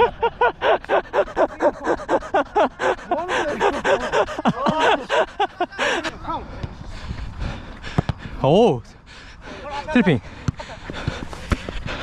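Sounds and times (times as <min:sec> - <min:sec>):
overlapping laughter: 0:00.0 - 0:06.1
person laughing heartily: 0:00.0 - 0:06.2.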